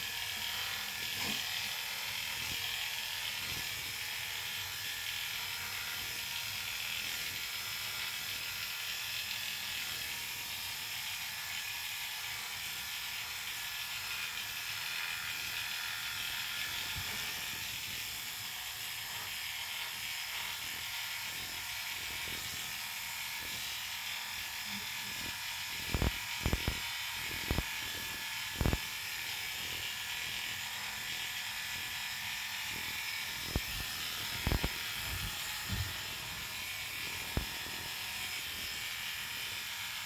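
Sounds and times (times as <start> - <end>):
electric dog clippers running: 0.0 - 40.0.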